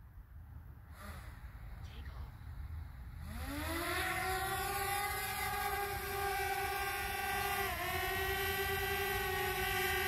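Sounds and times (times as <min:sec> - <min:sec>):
drone motors whining: 0:03.1 - 0:10.0.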